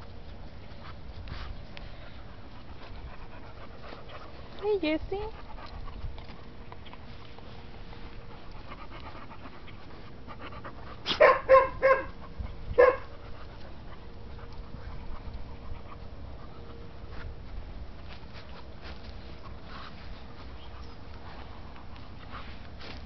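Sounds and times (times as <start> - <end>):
dog panting: 0.2 - 17.2
dog sniffing: 0.3 - 17.2.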